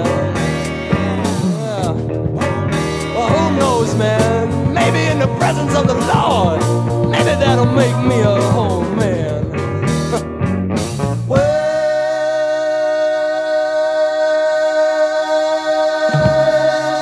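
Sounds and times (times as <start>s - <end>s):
person singing: 0.0s - 10.2s, 11.3s - 17.0s
low musical accompaniment: 0.0s - 11.2s, 15.7s - 17.0s.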